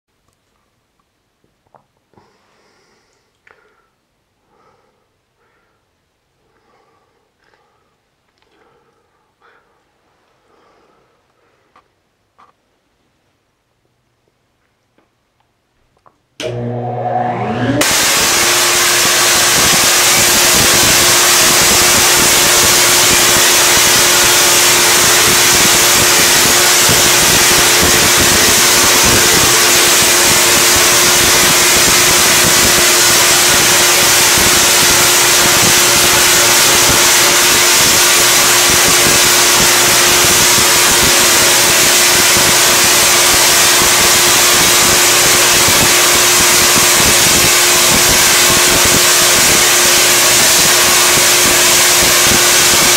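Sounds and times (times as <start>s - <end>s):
tesla coil crackling buzz: 19.1s - 48.8s.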